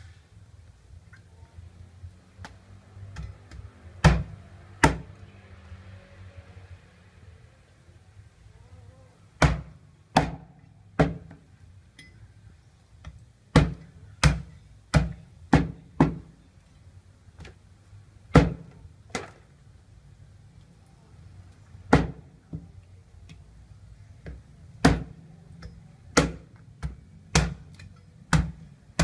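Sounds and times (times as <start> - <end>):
cleaver chopping on wooden block: 3.2 - 5.1, 9.4 - 11.4, 13.5 - 16.3, 24.2 - 25.2, 26.2 - 29.0.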